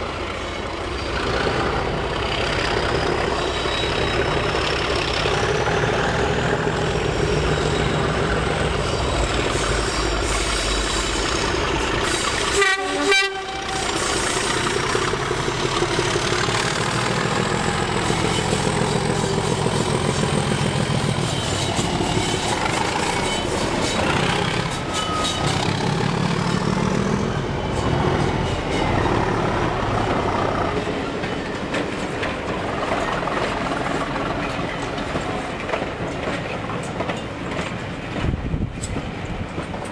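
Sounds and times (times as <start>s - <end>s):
coaches rolling on rails: 0.0s - 39.9s
diesel locomotive engines running: 0.0s - 39.9s
train horn blast: 12.0s - 14.3s.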